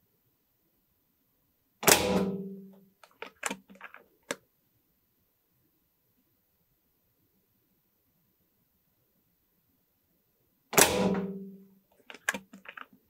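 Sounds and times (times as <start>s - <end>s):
air rifle shot: 1.8s - 2.6s, 10.8s - 11.5s
metallic clicks of rifle action: 3.0s - 4.4s, 12.0s - 13.0s.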